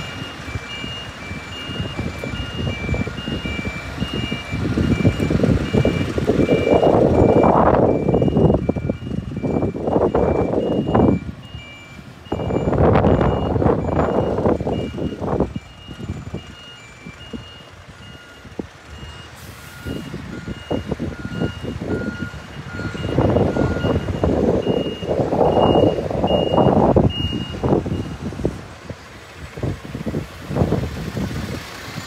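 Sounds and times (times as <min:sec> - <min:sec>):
reversing alarms beeping: 0:00.0 - 0:28.6
heavy vehicle engine and road noise: 0:00.0 - 0:32.0.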